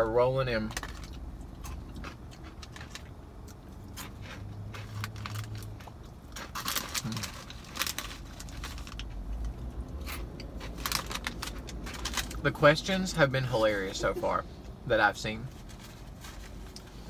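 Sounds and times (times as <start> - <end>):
crunchy snack being chewed: 0.7 - 12.4
snack bag crinkling: 3.9 - 12.4.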